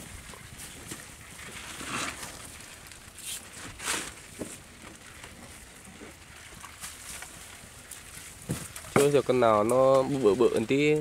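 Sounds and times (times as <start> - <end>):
fish trap splashing and rustling: 0.0 - 11.0.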